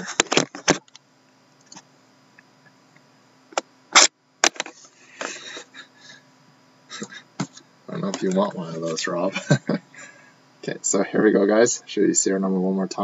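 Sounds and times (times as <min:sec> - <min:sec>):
objects clicking and knocking on desk: 0:04.4 - 0:04.8.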